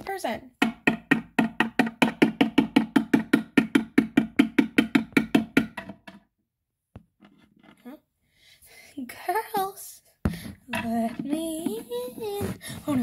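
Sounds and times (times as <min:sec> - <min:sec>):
rapid knocking on hollow surface: 0:00.6 - 0:06.2.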